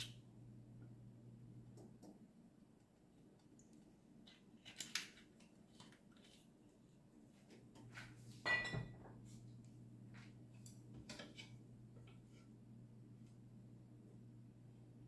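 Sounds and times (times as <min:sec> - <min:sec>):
faint low hum: 0:00.0 - 0:15.0
glass bottle clinking: 0:08.5 - 0:08.9.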